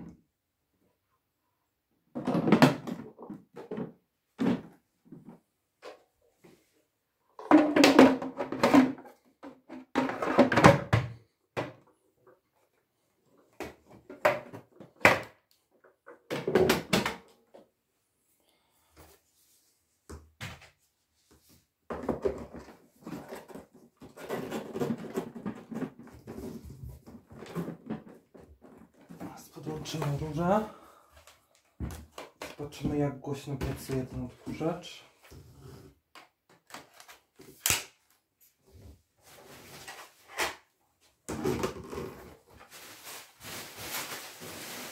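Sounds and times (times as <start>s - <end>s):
plastic vacuum parts clunking: 21.9s - 30.4s.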